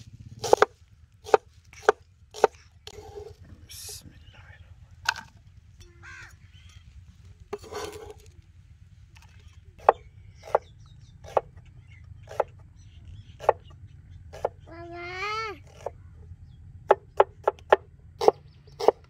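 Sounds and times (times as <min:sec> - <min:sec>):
cleaver chopping on wooden board: 0:00.4 - 0:03.3, 0:09.8 - 0:11.6, 0:12.2 - 0:12.6, 0:13.4 - 0:13.7, 0:14.3 - 0:14.6, 0:16.9 - 0:19.0.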